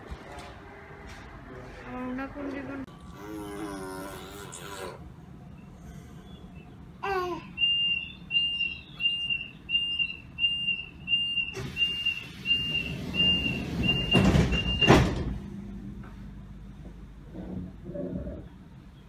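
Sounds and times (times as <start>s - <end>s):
train door warning beeps: 7.6s - 15.2s.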